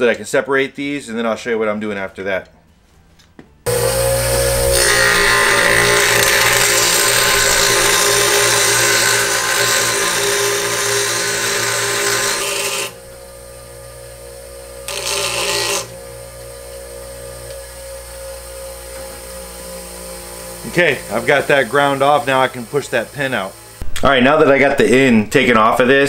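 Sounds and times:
bench grinder grinding steel: 0:03.7 - 0:23.9
grinder motor humming: 0:03.7 - 0:23.9.

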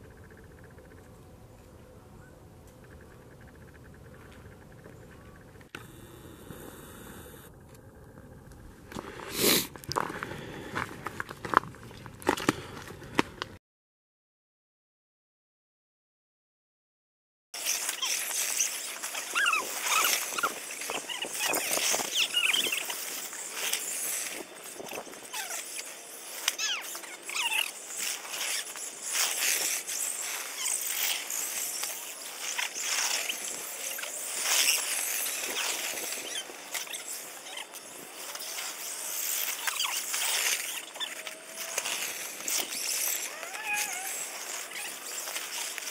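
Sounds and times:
electric motor whine: 0:05.6 - 0:09.0, 0:17.6 - 0:45.9
high squeaky chirps: 0:17.6 - 0:45.8
dry leaves crunching: 0:17.7 - 0:45.9.

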